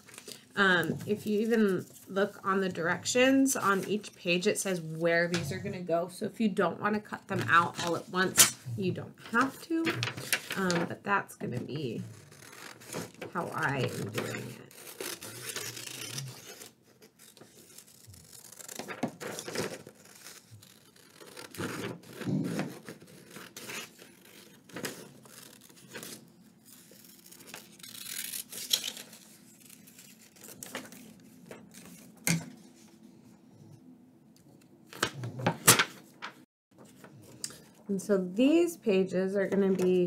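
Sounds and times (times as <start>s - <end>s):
paper rustling: 9.2s - 11.0s, 11.8s - 33.1s, 34.9s - 37.8s
scissors snipping paper: 12.2s - 32.4s.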